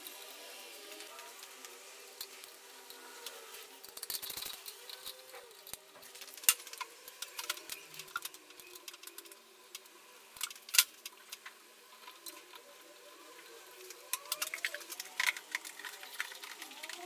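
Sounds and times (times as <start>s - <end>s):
faint steady hum: 0.0s - 17.0s
metal parts and tools clicking: 3.8s - 12.6s, 13.8s - 17.0s.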